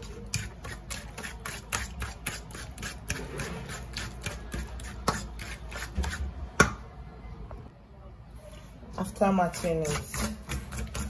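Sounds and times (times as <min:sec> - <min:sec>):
plantain mashed in metal bowl: 0:00.0 - 0:06.8, 0:09.2 - 0:11.0.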